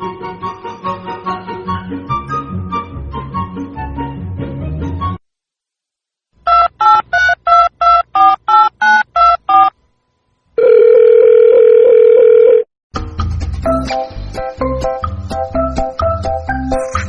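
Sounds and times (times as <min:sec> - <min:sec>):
phone keypad dialing beeps: 0:06.5 - 0:09.7
phone ringing tone: 0:06.5 - 0:09.7, 0:10.6 - 0:12.7.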